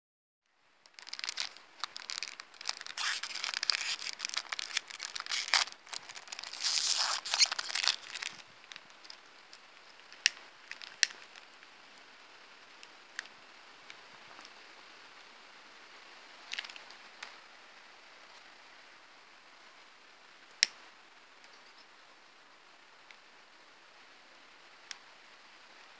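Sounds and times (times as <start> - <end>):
foil wrapper tearing and crinkling: 0.9 - 9.2.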